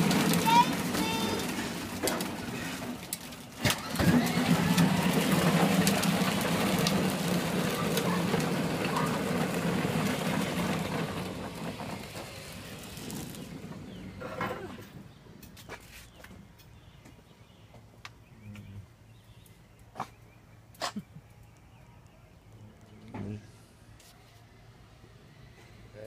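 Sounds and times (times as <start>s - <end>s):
toy car electric motor humming: 3.7s - 13.6s.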